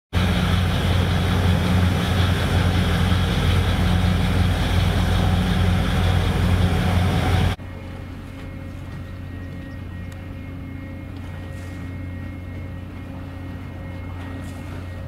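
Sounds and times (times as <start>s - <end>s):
water-jet rushing and churning: 0.2s - 7.6s
low engine hum: 0.2s - 15.0s.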